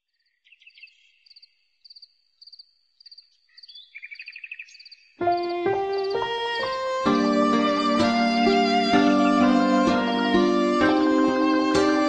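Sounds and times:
crickets chirping: 1.2 - 6.9
music: 5.2 - 12.0.

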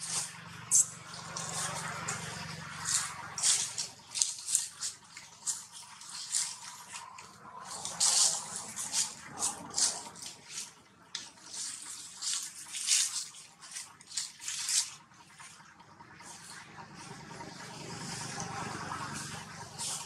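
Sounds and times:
dry leaves rustling and crackling: 0.0 - 20.0.

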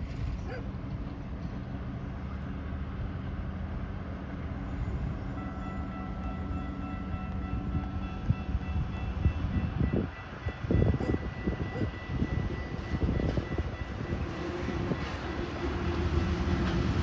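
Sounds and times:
diesel locomotive engine drone: 0.0 - 17.0
level crossing warning bell: 5.3 - 15.9.

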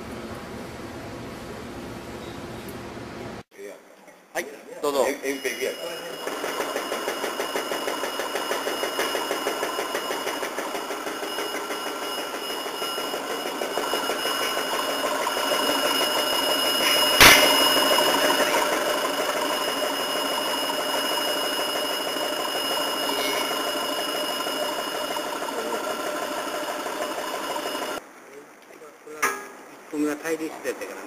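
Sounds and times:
faint machine whine: 4.8 - 28.0
cutting machine clatter: 5.4 - 28.0
sharp clack: 16.8 - 17.8.

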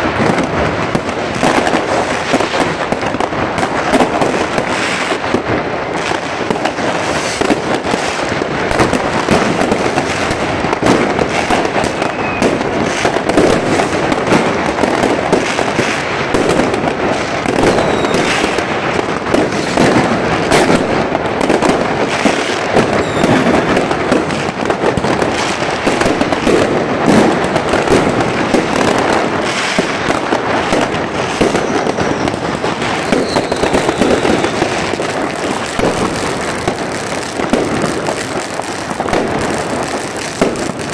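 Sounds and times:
firecrackers banging and crackling: 0.0 - 40.9
rockets bursting: 0.0 - 40.9
rocket whistles: 12.0 - 12.6, 17.6 - 18.4, 23.0 - 23.5, 31.5 - 34.7.

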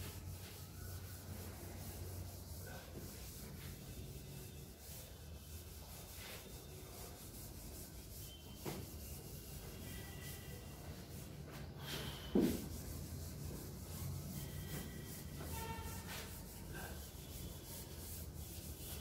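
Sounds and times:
duster wiping chalkboard: 0.0 - 19.0.

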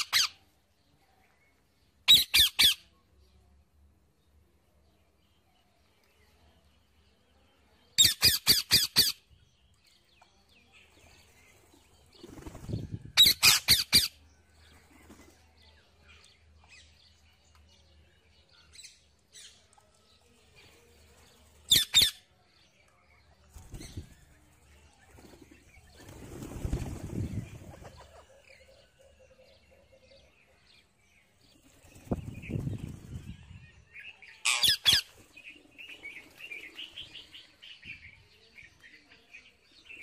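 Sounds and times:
parakeets screeching: 13.2 - 14.1, 34.4 - 35.1.

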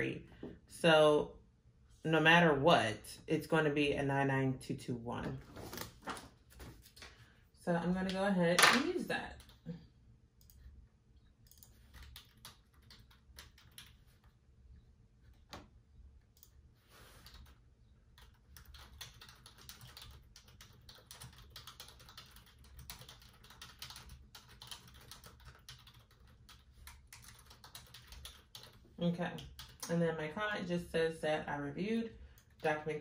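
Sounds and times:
typing on a computer keyboard: 11.4 - 14.2, 18.2 - 29.9.

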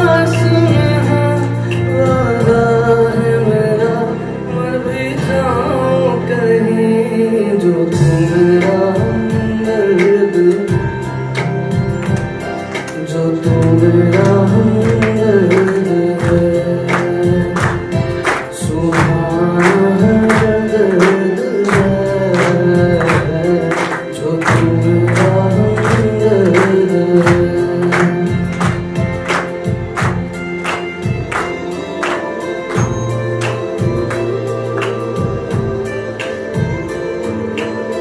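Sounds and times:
man singing into a microphone: 0.0 - 11.2, 12.9 - 29.8
backing track with steady beat: 0.0 - 38.0.

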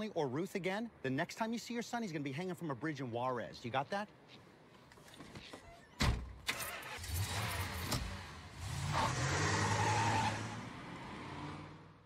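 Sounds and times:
car engine starting and running: 6.3 - 12.0.

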